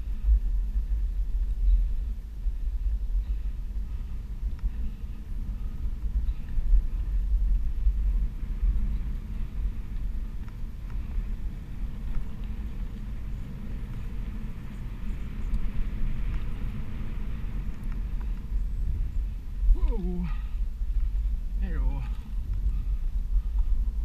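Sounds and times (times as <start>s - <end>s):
wind buffeting microphone: 0.0s - 24.0s
tyre rolling over dirt trail: 5.2s - 24.0s.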